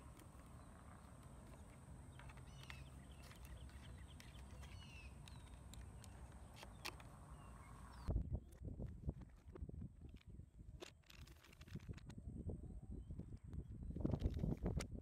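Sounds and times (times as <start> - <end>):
bird chirps: 0.4 - 8.1.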